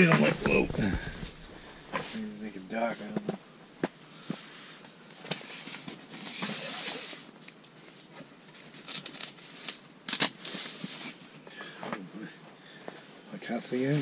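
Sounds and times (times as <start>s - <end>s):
rustling handling noise: 0.0s - 3.4s.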